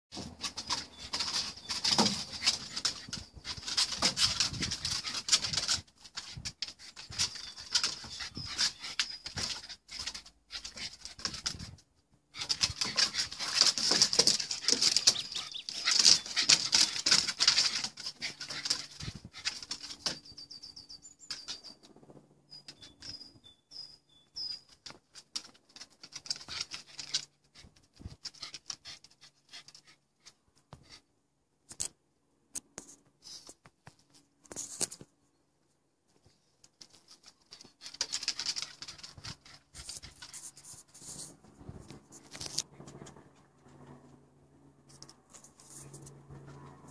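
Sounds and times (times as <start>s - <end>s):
dog claws scrabbling on wood: 0.1s - 20.2s, 24.9s - 30.0s, 36.6s - 43.2s
dogs shuffling: 0.1s - 20.2s.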